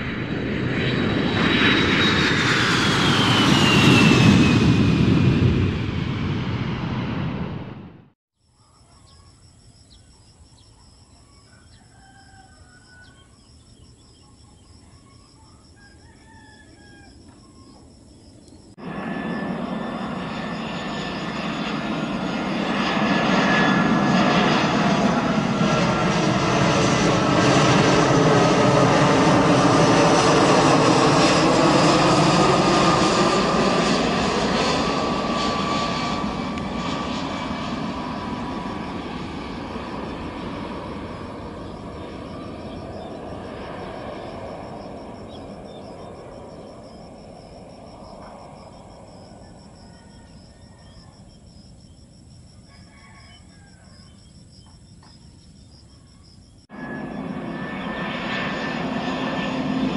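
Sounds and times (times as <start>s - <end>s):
jet aircraft noise: 0.0s - 8.2s, 15.7s - 59.9s
faint bird calls: 8.6s - 18.7s, 48.2s - 52.0s, 52.6s - 57.2s
rooster crowing: 11.4s - 13.5s, 15.4s - 17.4s, 49.1s - 51.4s, 52.5s - 54.3s.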